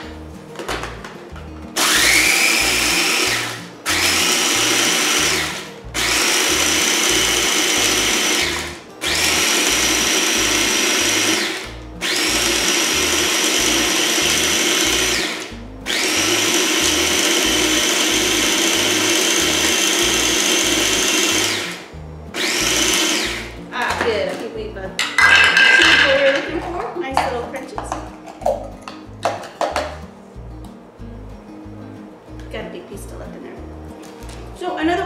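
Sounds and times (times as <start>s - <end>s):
food processor motor whine: 1.8s - 23.6s.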